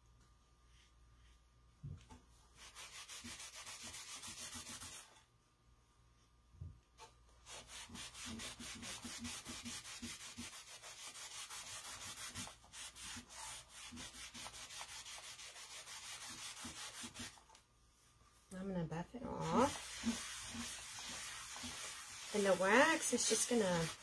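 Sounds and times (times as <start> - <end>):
cloth rubbing wax on wood: 2.6 - 5.2, 7.4 - 17.6, 18.6 - 24.0.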